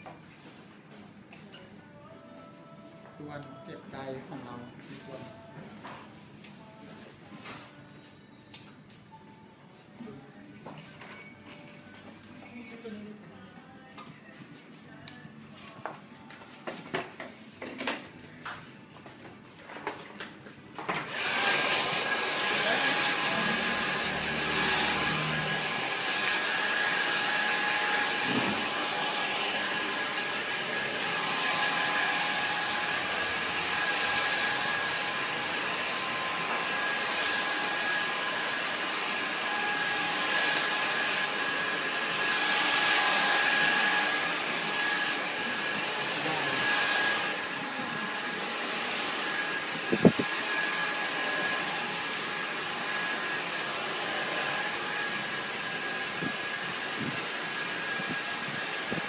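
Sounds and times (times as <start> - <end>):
hair dryer blowing: 21.0 - 59.0.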